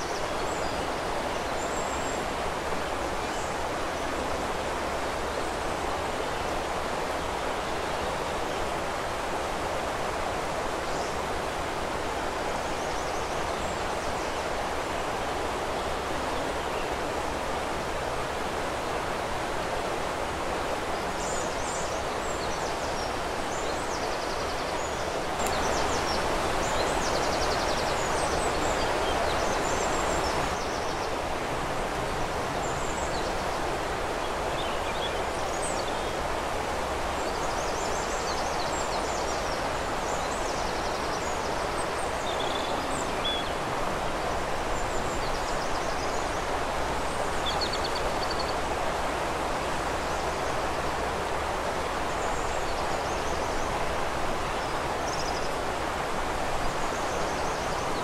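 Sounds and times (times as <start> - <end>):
river water flowing: 0.0 - 58.0
songbirds chirping: 0.0 - 58.0.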